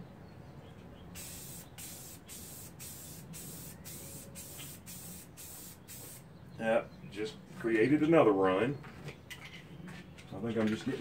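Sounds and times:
aerosol spray can hissing: 1.2 - 6.2.

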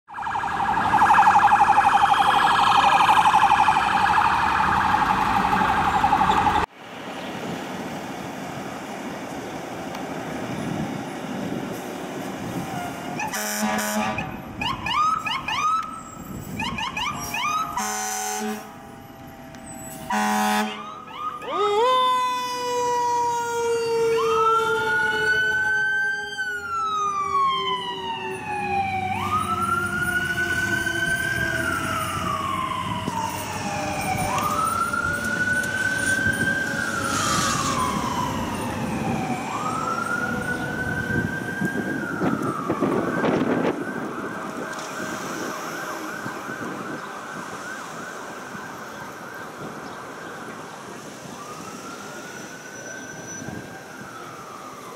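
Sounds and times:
electronic wail siren: 0.1 - 6.7, 12.8 - 54.9
air horn blast: 13.2 - 14.4, 17.2 - 19.0, 19.9 - 20.9.

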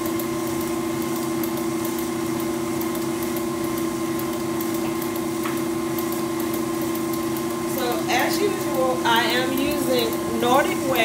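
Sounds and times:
stand mixer beating batter: 0.0 - 11.0.

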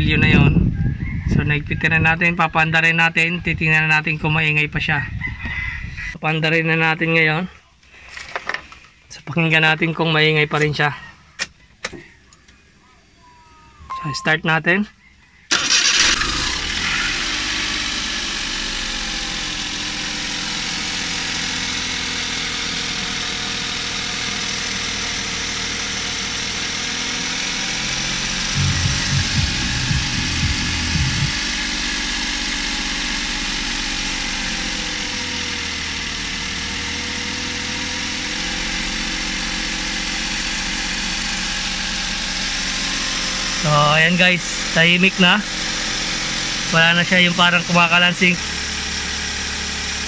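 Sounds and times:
car engine starting and idling: 15.5 - 50.0
low thumps: 28.6 - 31.5.

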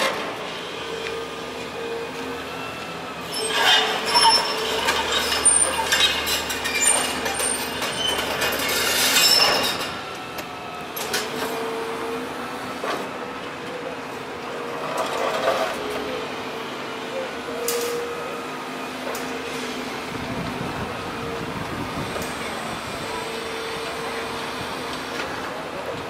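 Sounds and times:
high metallic squeals: 3.2 - 10.1.

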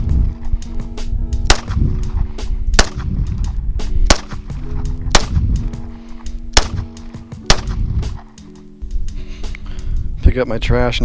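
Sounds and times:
background music: 0.0 - 11.0
pistol shots: 1.4 - 1.9, 2.8 - 3.2, 4.1 - 4.5, 5.1 - 5.6, 6.5 - 8.2.

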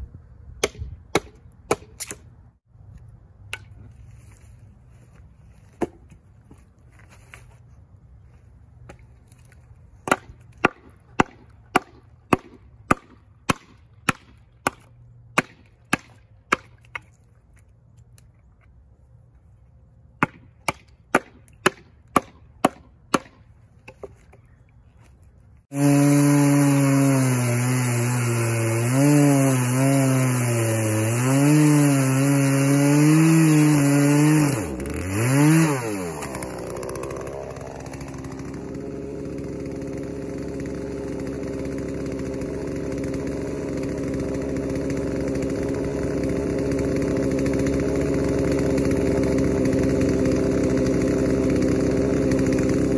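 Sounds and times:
hatchet striking log: 0.6 - 2.2, 10.0 - 17.2, 20.2 - 24.2
chainsaw cutting wood: 8.8 - 17.2, 20.2 - 24.1, 25.6 - 52.9.

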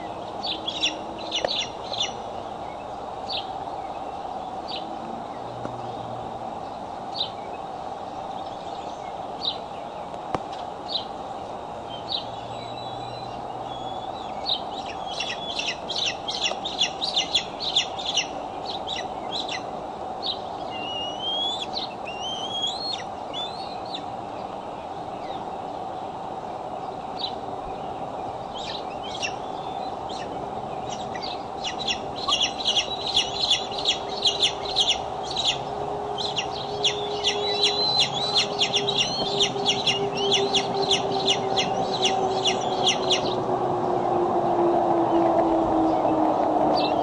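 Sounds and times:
eagle high-pitched chittering: 13.9 - 19.6, 30.1 - 43.3
eagle high rising whistles: 20.6 - 24.0, 28.5 - 47.0.

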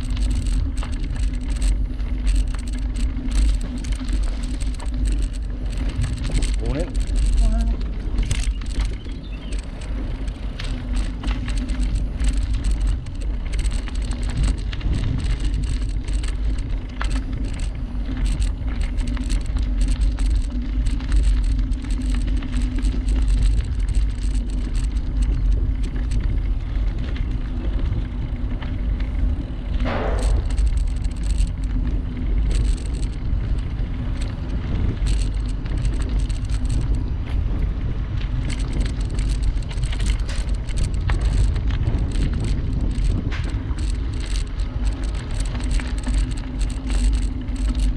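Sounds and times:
bicycle tyre hum: 0.0 - 47.9
bike rattles and clicks: 0.0 - 47.9.

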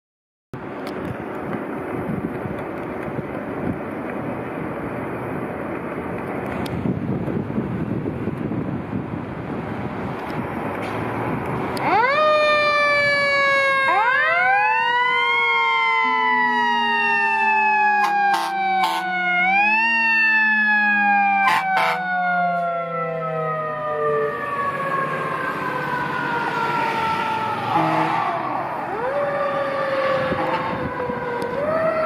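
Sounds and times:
truck engine and road noise: 0.5 - 32.0
mechanical siren wailing: 11.8 - 32.0
short horn blasts: 18.0 - 19.1, 21.4 - 22.0, 27.7 - 28.3.

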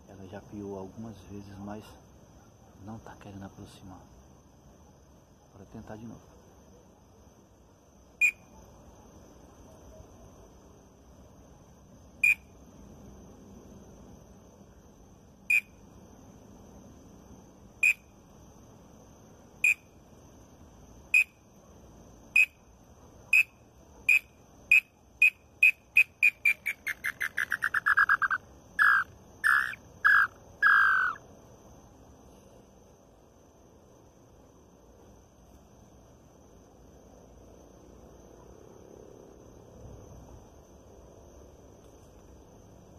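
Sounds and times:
whistled bird call notes: 26.0 - 31.2.

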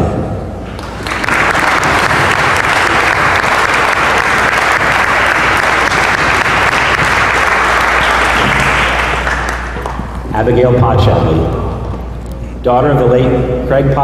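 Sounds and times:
audience applauding: 0.6 - 10.3.

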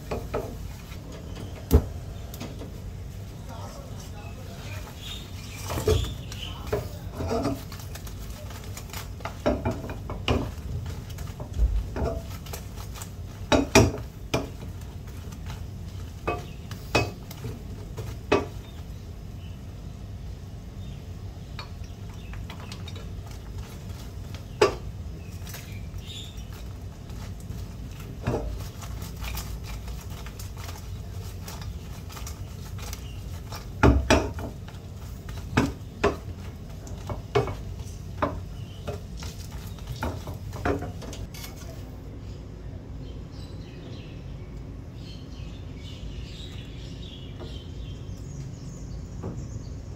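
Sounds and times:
wooden spoon scraping frying pan: 0.0 - 1.6, 3.9 - 19.0, 22.1 - 41.8.

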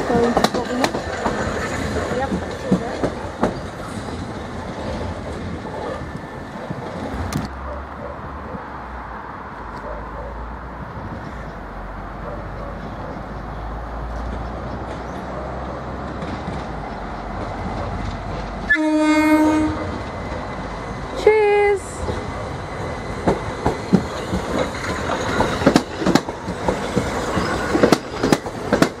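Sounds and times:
train rumbling: 0.0 - 29.0
train horn: 18.7 - 20.0.

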